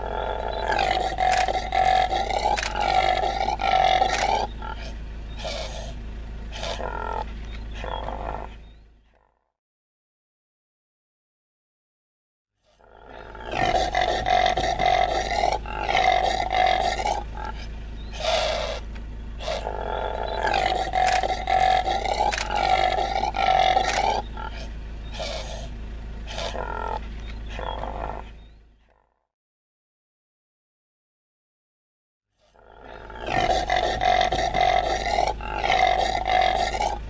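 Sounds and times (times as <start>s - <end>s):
steady low hum: 0.0s - 9.1s, 13.0s - 28.8s, 32.8s - 37.0s
impala calling: 0.0s - 9.3s, 12.7s - 29.1s, 32.5s - 37.0s.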